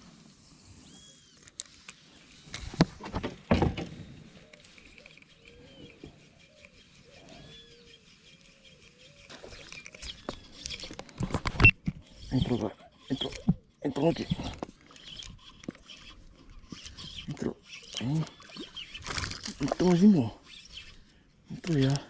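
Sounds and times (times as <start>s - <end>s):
birds calling: 3.9s - 22.0s
higher bird chirps: 4.4s - 10.9s.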